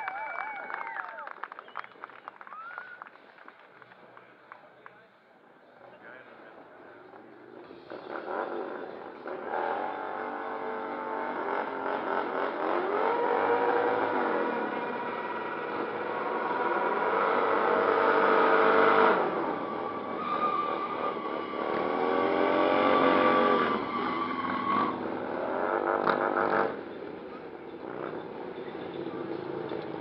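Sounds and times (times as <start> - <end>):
motorcycle engines revving: 6.0 - 30.0.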